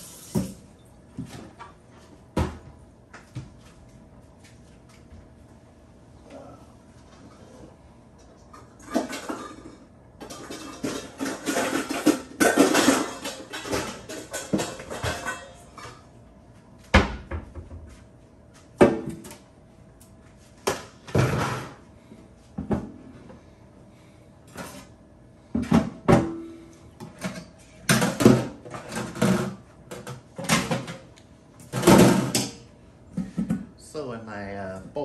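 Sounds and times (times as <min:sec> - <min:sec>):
cookware clattering: 0:08.9 - 0:15.9.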